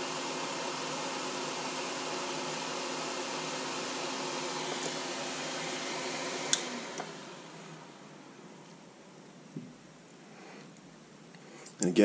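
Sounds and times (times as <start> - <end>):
extractor fan whirring: 0.0 - 8.5.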